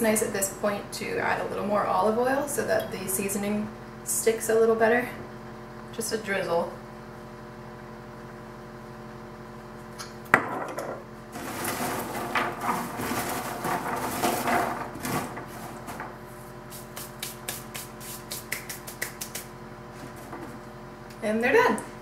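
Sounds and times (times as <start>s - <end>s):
background hum: 0.0s - 22.0s
chickpeas rattling on metal sheet: 11.4s - 16.2s
hands brushing together: 11.6s - 20.3s.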